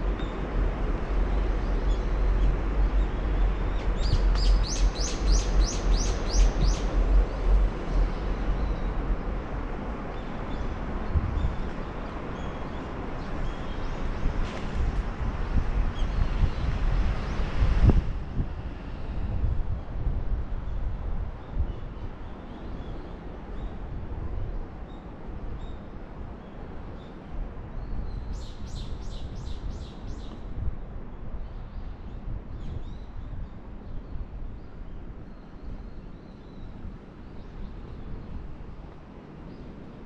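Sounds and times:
low outdoor rumble: 0.0 - 17.0.

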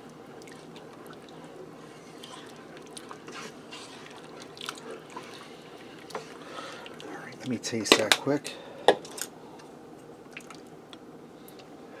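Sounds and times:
steady low hum: 0.0 - 12.0
spoon stirring soup: 0.3 - 8.2.

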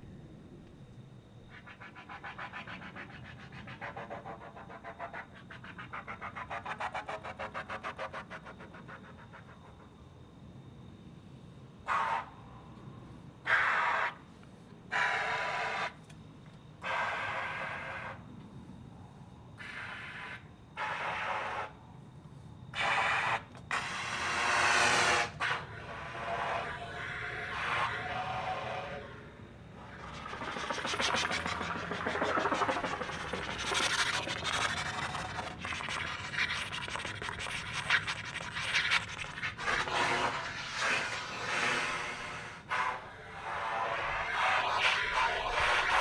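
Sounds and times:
air hissing through trumpet: 29.8 - 46.0.

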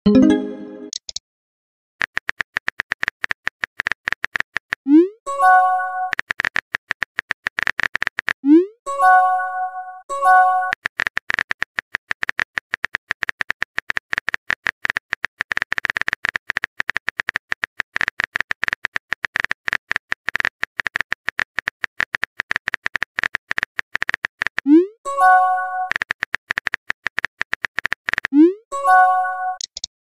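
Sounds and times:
phone keyboard typing clicks: 10.6 - 28.4, 29.0 - 29.9.

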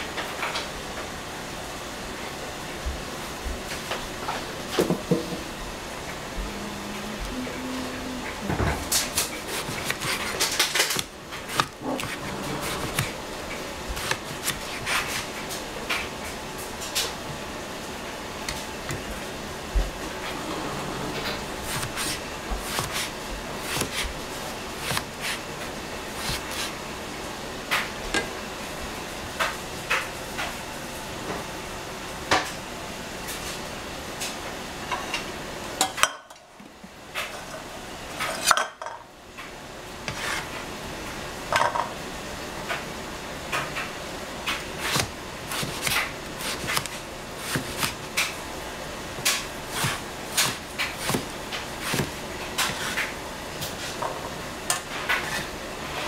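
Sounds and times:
cleaver chopping on cutting board: 9.1 - 13.2, 21.6 - 24.2, 24.8 - 25.4, 44.8 - 48.0, 49.3 - 53.1.

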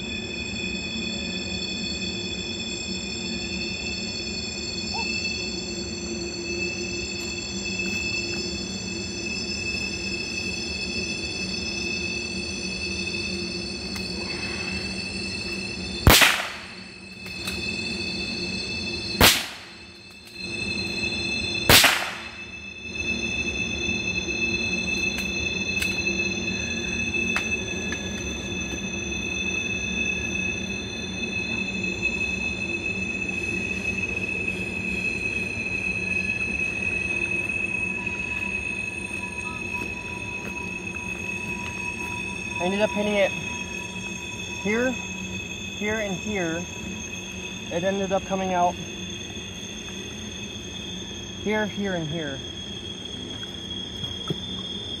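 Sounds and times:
train wheel squeal: 0.0 - 55.0
rifle shots: 16.1 - 16.6, 21.7 - 22.2.

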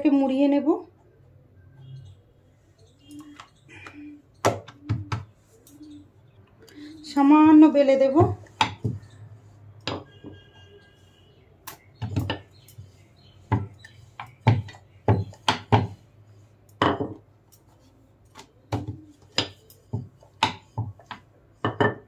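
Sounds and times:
rolling pin knocking on wooden board: 8.1 - 9.1, 13.5 - 16.0, 16.8 - 17.2, 18.7 - 22.0.

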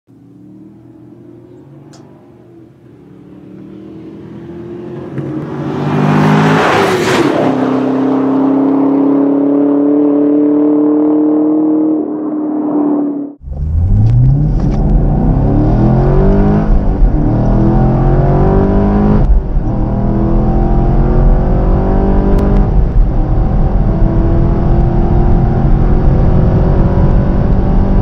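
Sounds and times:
car engine accelerating past: 0.9 - 22.7.

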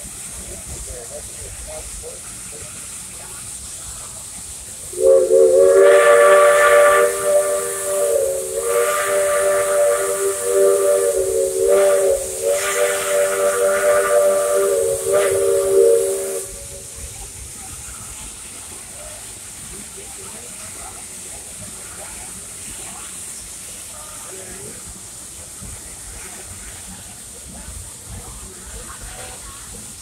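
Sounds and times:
steam locomotive whistle blast: 4.9 - 17.0.

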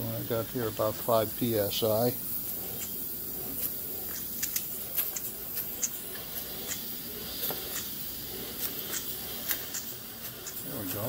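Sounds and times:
steady hiss of air: 0.0 - 11.0.

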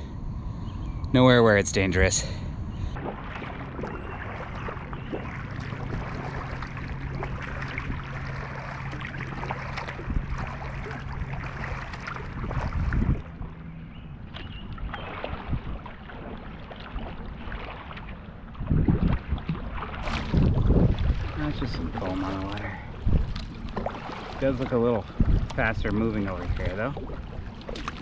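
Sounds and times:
steady low hum: 0.0 - 28.0
water lapping against hull: 2.2 - 28.0
loud splash: 3.0 - 13.2, 14.9 - 18.0, 18.6 - 25.4
paddle strokes splashing: 3.0 - 13.6, 14.2 - 28.0.

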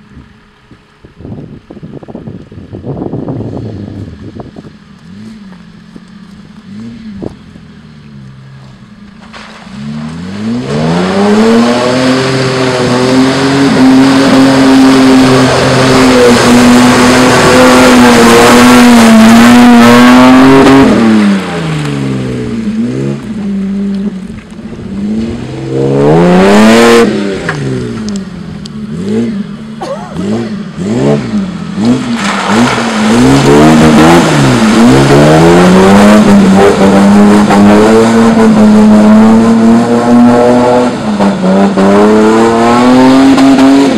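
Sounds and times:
car engine revving: 3.5 - 43.9
wheels spinning in mud: 31.1 - 37.3.

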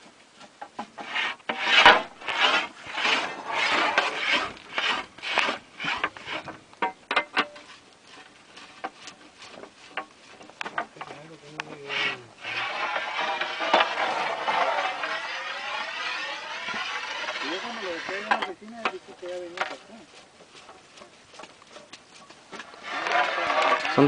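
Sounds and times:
drilling rig rasping scrapes: 0.7 - 6.6, 7.2 - 21.9, 22.5 - 24.0
sharp clicks and knocks: 3.9 - 11.8.

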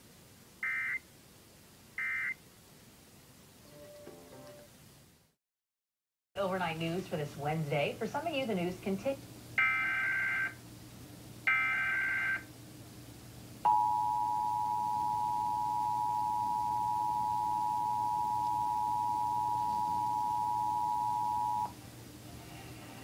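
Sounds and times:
two-tone attention signal: 13.7 - 21.7.

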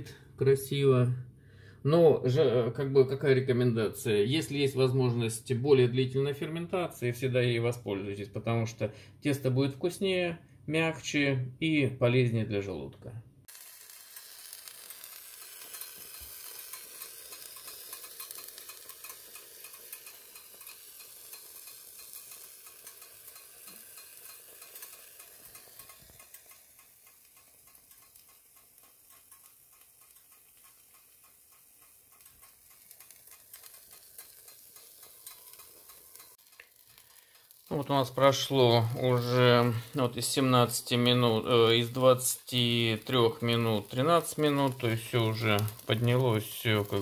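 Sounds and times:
pizza sizzling and crackling: 13.4 - 47.0.

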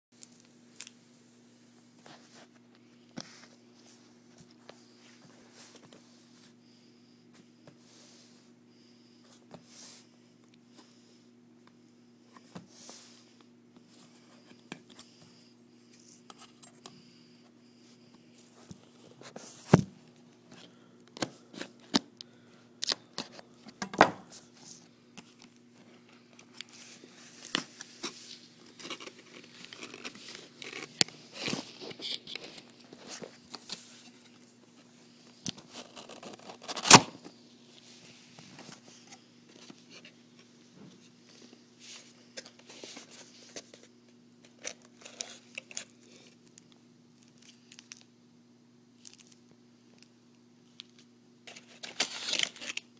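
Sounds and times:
faint steady hum: 0.2 - 52.9
packaging rustling and crinkling: 24.7 - 37.0.

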